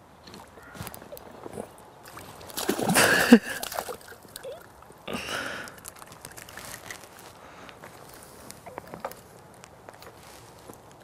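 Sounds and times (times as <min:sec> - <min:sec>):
fish splashing at water surface: 0:02.0 - 0:04.8.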